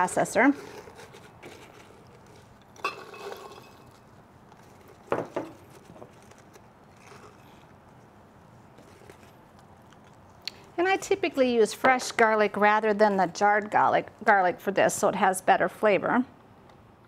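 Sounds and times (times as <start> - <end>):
glass bowl clinking on glass: 2.8 - 3.9.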